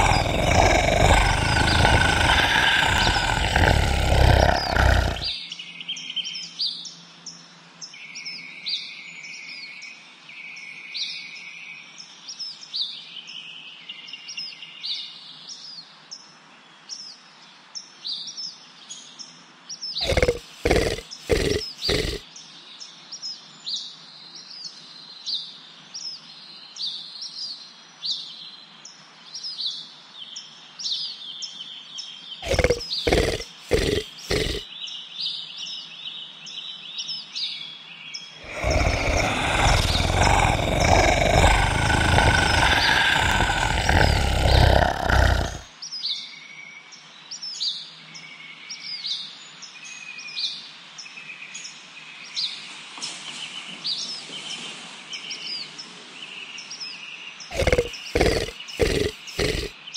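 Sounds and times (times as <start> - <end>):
komodo dragon loud rough sound: 0.0 - 5.3, 20.0 - 22.2, 32.4 - 34.6, 38.4 - 45.6, 57.5 - 59.7
small birds chirping: 0.0 - 6.8, 19.8 - 22.2, 32.4 - 35.1, 38.0 - 46.2, 56.6 - 59.9.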